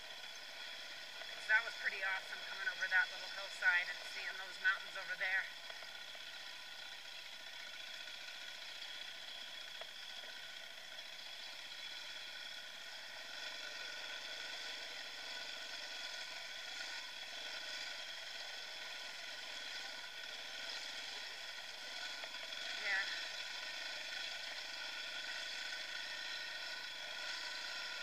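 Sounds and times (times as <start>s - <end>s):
dirt bike engine whine: 0.0s - 28.0s.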